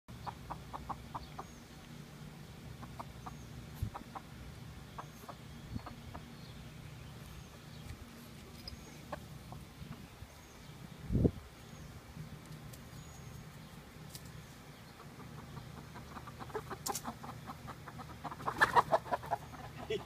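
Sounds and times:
chickens clucking: 0:00.1 - 0:01.9, 0:02.7 - 0:10.3, 0:14.1 - 0:20.0.

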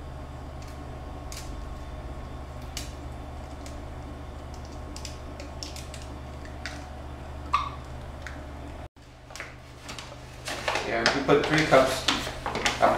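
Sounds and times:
low hum: 0:00.0 - 0:08.9.

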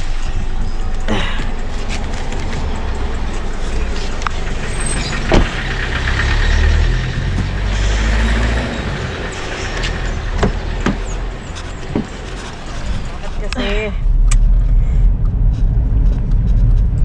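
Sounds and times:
van engine driving past: 0:00.0 - 0:13.2
car door clicks and knocks: 0:11.8 - 0:12.2.

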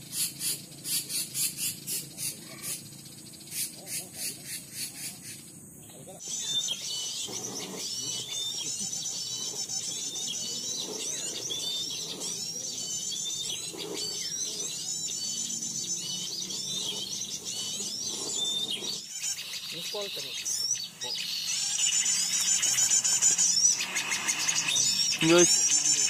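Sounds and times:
small birds chirping and twittering: 0:00.0 - 0:26.0.

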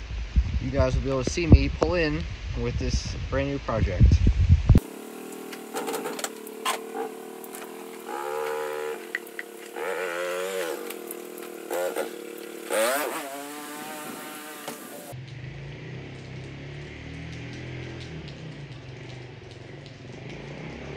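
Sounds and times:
atv engine revving: 0:04.8 - 0:20.9.

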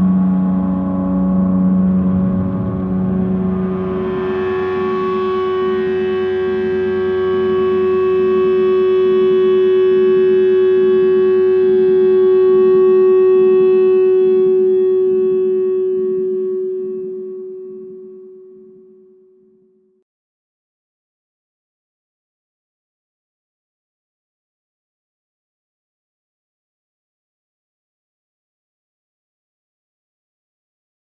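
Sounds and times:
ambient electronic drone music: 0:00.0 - 0:19.3.

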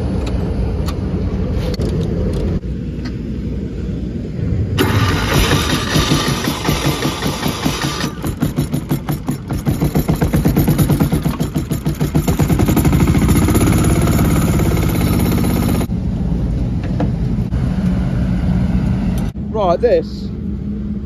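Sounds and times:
diesel engine starting: 0:04.6 - 0:16.2.

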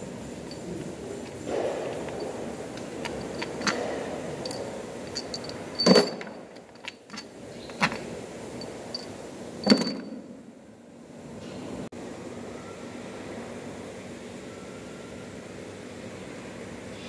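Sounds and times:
metal tools clinking on metal: 0:00.4 - 0:08.0, 0:08.6 - 0:10.2.

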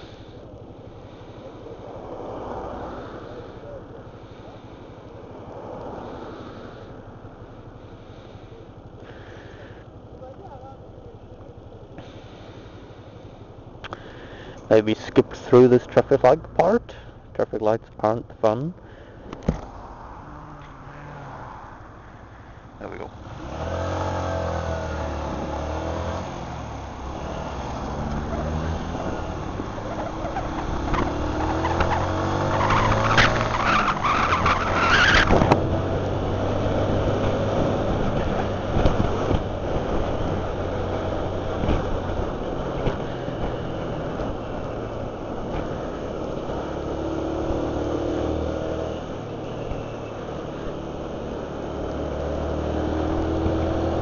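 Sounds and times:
motorcycle engine accelerating: 0:19.2 - 0:54.0.

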